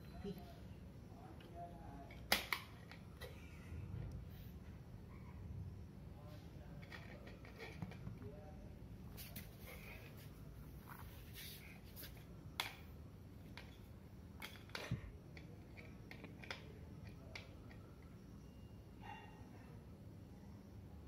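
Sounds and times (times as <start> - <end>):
toys tapping on concrete floor: 2.1 - 3.1, 12.6 - 12.9, 13.5 - 18.0.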